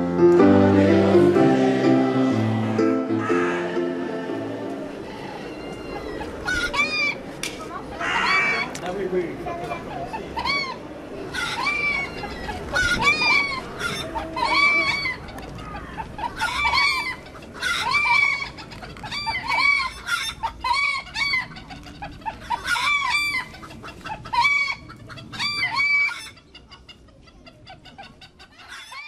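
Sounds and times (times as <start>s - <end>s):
gulls calling: 1.6s - 8.7s.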